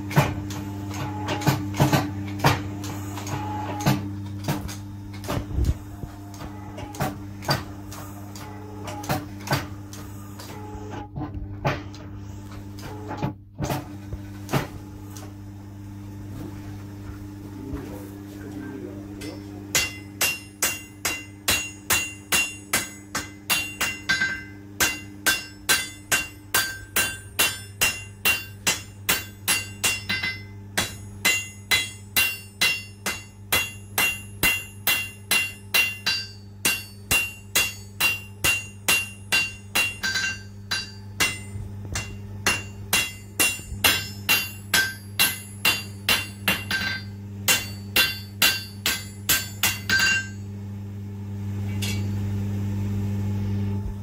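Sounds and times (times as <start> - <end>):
steady low hum: 0.0 - 54.0
hammer ringing on anvil: 19.2 - 50.5, 51.8 - 52.2.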